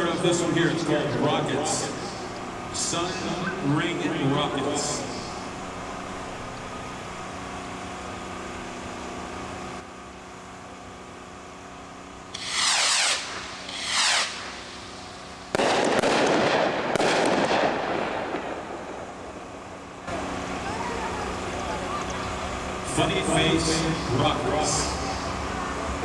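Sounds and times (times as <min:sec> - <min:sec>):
firework crackling: 0:12.3 - 0:19.8
firework bursts: 0:12.3 - 0:20.7
rockets whistling whoosh: 0:12.4 - 0:18.1.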